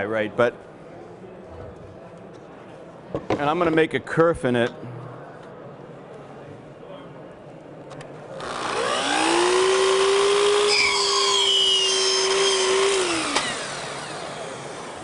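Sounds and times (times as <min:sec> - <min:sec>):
miter saw whining: 0:08.4 - 0:15.0
saw blade cutting wood: 0:08.4 - 0:15.0.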